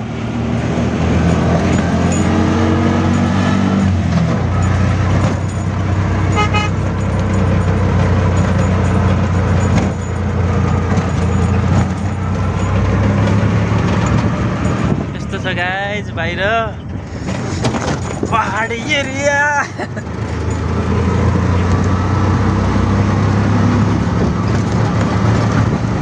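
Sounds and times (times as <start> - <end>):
auto rickshaw engine running: 0.0 - 26.0
short horn beep: 6.3 - 6.8.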